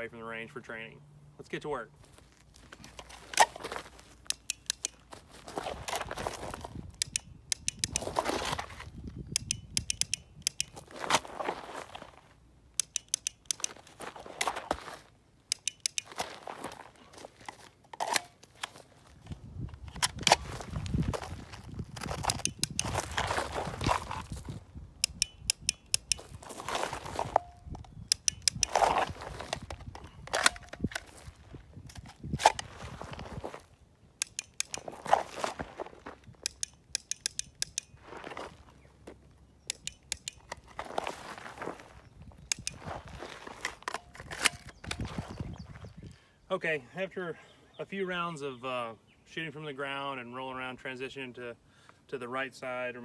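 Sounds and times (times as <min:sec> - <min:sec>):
clothing rustling on gravel: 0:02.0 - 0:04.3, 0:05.0 - 0:06.9, 0:08.0 - 0:09.2, 0:10.8 - 0:12.6, 0:13.7 - 0:15.4, 0:16.0 - 0:24.8, 0:26.2 - 0:27.7, 0:28.7 - 0:34.0, 0:34.8 - 0:36.4, 0:38.0 - 0:39.4, 0:40.6 - 0:46.0
pistol trigger clicks: 0:04.3 - 0:05.0, 0:07.0 - 0:08.2, 0:09.2 - 0:10.8, 0:12.8 - 0:13.8, 0:15.5 - 0:16.2, 0:22.1 - 0:23.1, 0:25.0 - 0:26.4, 0:27.3 - 0:28.8, 0:34.2 - 0:34.9, 0:36.4 - 0:38.0, 0:39.6 - 0:40.6, 0:42.4 - 0:42.8.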